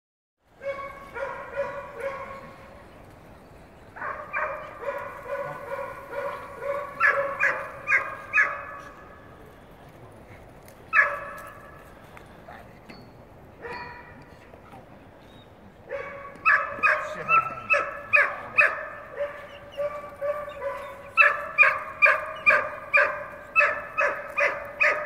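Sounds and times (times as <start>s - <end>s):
dog yelping loudly: 4.0s - 8.8s, 10.9s - 11.4s, 15.9s - 25.0s.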